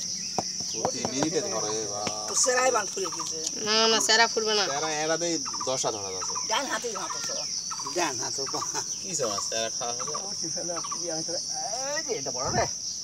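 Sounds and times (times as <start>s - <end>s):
high insect drone: 0.0s - 13.0s
chickens clucking: 0.4s - 4.0s, 5.3s - 11.8s.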